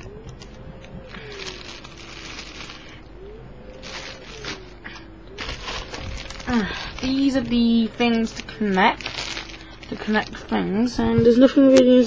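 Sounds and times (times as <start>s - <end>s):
faint tone rising and falling: 0.0s - 8.0s
plastic packaging crinkling: 0.0s - 11.1s.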